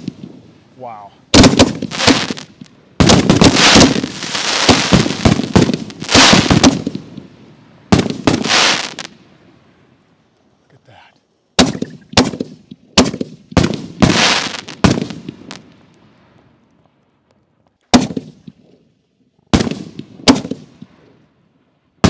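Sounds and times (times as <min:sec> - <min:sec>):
firework shells banging: 0:01.4 - 0:07.2.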